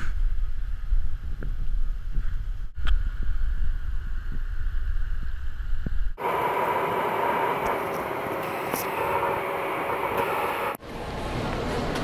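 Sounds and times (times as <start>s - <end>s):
faint hum: 0.0s - 11.9s
airliner cabin rushing hiss: 6.2s - 10.8s.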